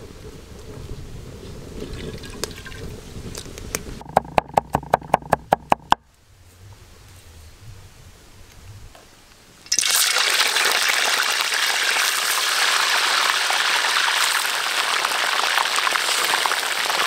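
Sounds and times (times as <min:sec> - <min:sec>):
knife chopping on wooden board: 0:04.0 - 0:06.0
oil pouring into wok: 0:09.7 - 0:17.0.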